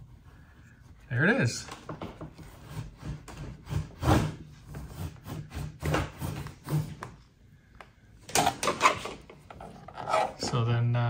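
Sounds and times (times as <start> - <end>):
wire scraping against plastic parts: 8.3 - 10.6.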